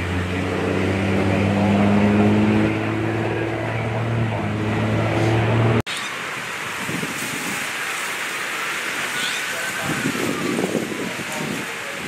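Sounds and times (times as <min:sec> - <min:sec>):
engine running with low hum: 0:00.0 - 0:05.8.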